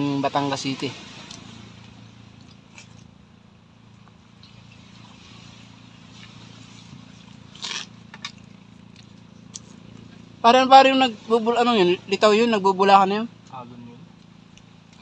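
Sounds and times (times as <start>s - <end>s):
quiet outdoor background: 0.0s - 15.0s
people eating from plastic plates: 6.2s - 10.3s.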